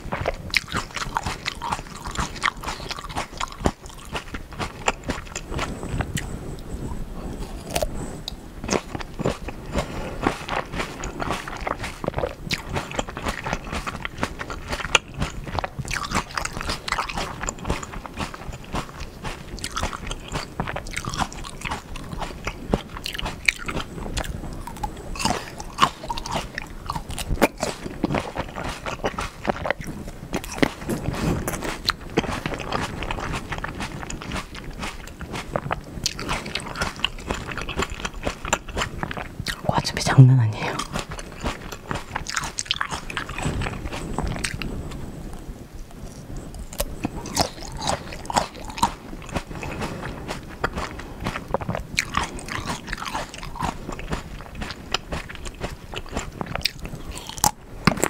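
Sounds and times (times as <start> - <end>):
chewing crisp grapes: 0.0 - 58.0.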